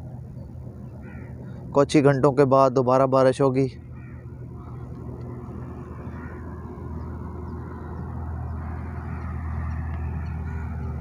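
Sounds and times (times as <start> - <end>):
low hum and rumble: 0.0 - 11.0
faint bird calls: 0.3 - 1.8, 3.8 - 11.0.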